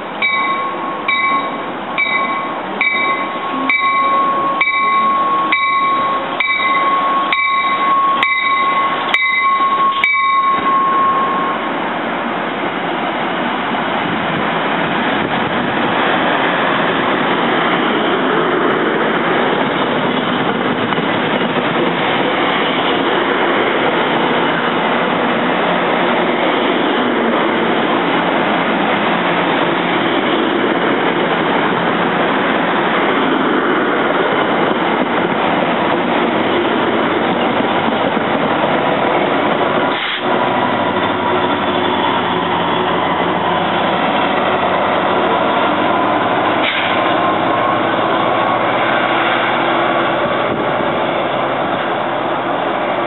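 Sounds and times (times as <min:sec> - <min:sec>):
train wheels on rails: 0:00.0 - 0:53.0
high steady tone: 0:00.1 - 0:11.9.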